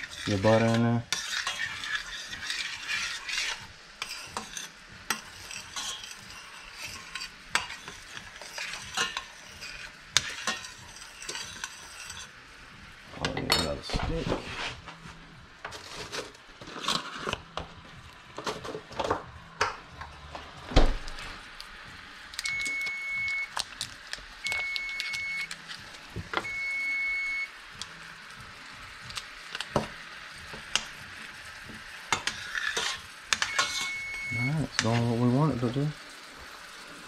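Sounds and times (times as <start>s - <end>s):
utensils and pans clinking: 0.0s - 12.3s, 13.2s - 14.2s, 15.7s - 17.4s, 32.1s - 35.0s
pan sizzling: 0.0s - 37.0s.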